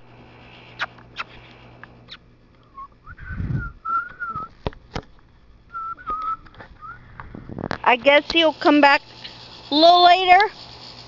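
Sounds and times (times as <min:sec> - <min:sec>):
person whistling: 0:02.7 - 0:04.5, 0:05.7 - 0:07.0.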